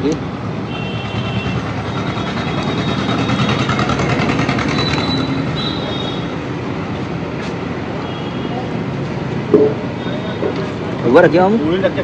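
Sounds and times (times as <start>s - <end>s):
vehicle engines running: 0.0s - 8.0s.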